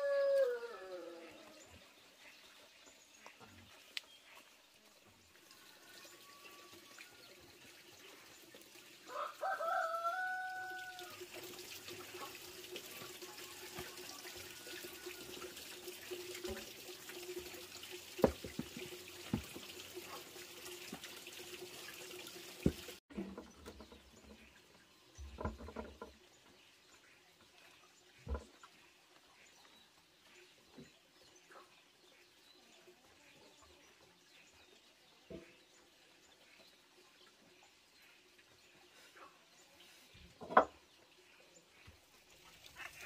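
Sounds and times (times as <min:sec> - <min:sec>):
rooster crowing: 0:00.0 - 0:01.3, 0:09.1 - 0:11.2.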